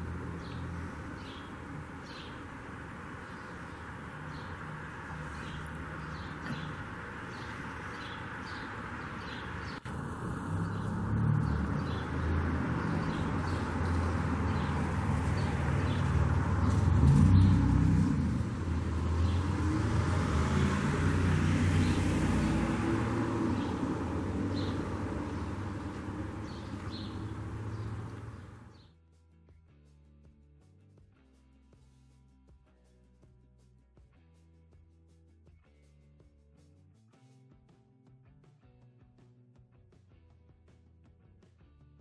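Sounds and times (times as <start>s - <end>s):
vehicle engine rumble: 0.0s - 28.9s.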